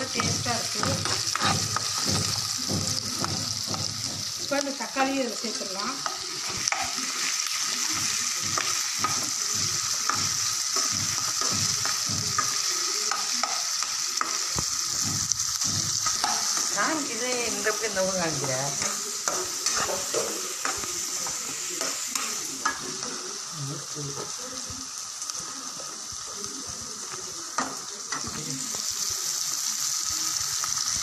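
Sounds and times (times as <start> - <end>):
metal spoon scraping a pan: 0.0 - 2.4, 15.6 - 23.2
vegetables sizzling in hot oil: 0.0 - 31.0.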